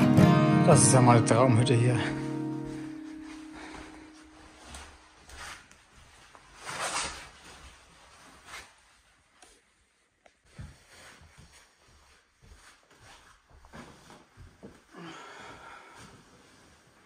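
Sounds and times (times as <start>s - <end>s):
guitar chord: 0.0s - 3.8s
soft rustling and handling: 2.7s - 17.0s.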